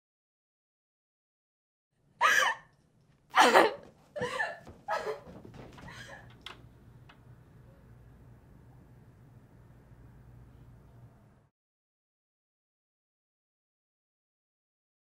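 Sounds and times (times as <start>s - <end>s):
low room hum: 2.0s - 11.5s.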